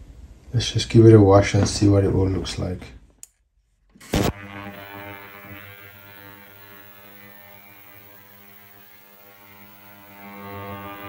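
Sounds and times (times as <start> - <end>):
ultrasonic cleaner buzzing hum: 4.0 - 11.0.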